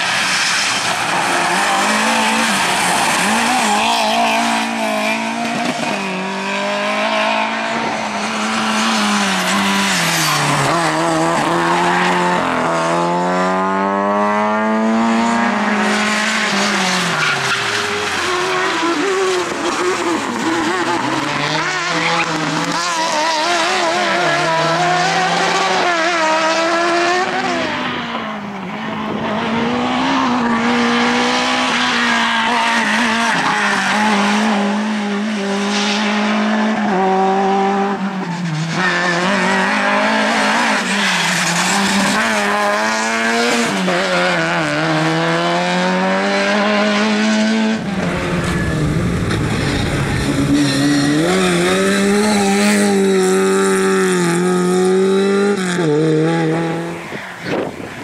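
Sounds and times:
rally car engines revving: 0:00.0 - 0:58.0
tyre squeal: 0:07.1 - 0:12.4.

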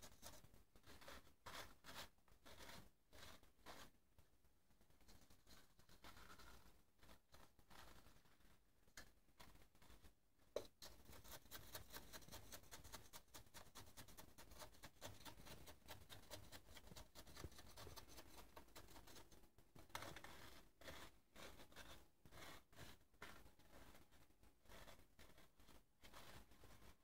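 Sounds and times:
small tool scraping paper shell: 0:10.8 - 0:24.0.

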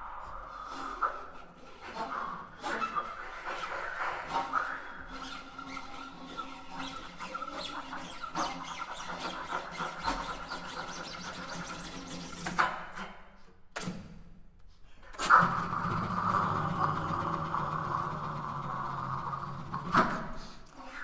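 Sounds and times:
experimental chamber music: 0:00.0 - 0:12.2, 0:15.2 - 0:21.0
sharp click: 0:13.8 - 0:14.2.

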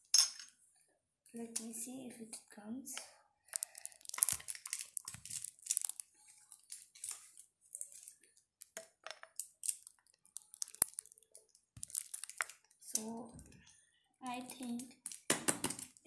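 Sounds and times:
plastic bottle crinkling and rustling: 0:03.5 - 0:12.8.

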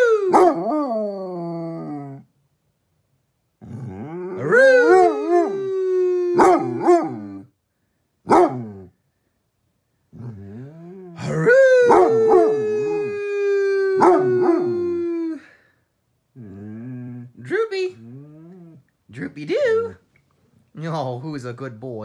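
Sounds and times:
dog howling: 0:00.0 - 0:02.2, 0:03.7 - 0:07.5, 0:10.2 - 0:15.5
dog yelping: 0:06.4 - 0:07.4, 0:08.3 - 0:08.9, 0:11.2 - 0:12.9, 0:14.0 - 0:14.7.

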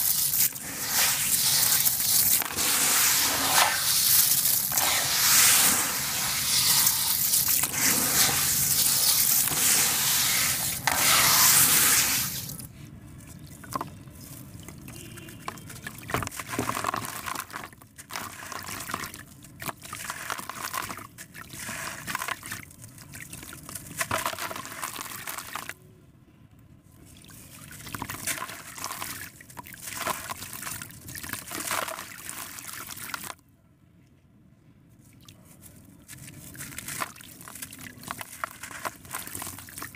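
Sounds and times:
hands squishing wet sand: 0:00.0 - 0:12.7, 0:35.4 - 0:39.9
water splashing and trickling: 0:00.0 - 0:25.8, 0:27.0 - 0:33.4, 0:35.0 - 0:39.9.

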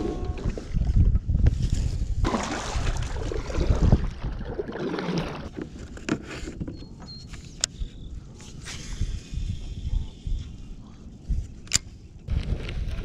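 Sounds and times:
kayak hull scraping on dirt: 0:01.6 - 0:06.6
kayak sliding into water: 0:02.2 - 0:05.7.

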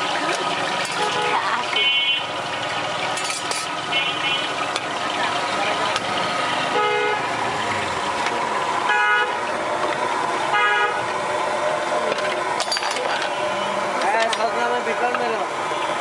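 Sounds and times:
traffic din: 0:00.0 - 0:16.0
vehicle horns honking: 0:00.8 - 0:02.4, 0:03.7 - 0:04.6, 0:06.7 - 0:07.3, 0:08.8 - 0:09.5, 0:10.5 - 0:11.1, 0:13.2 - 0:13.9.

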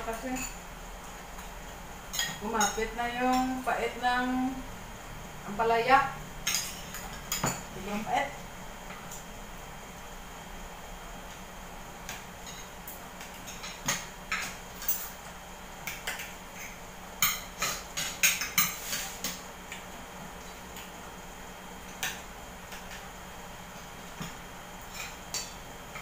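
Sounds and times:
faint steady hum: 0:00.0 - 0:26.0
cutlery clinking against plates: 0:15.8 - 0:19.8.

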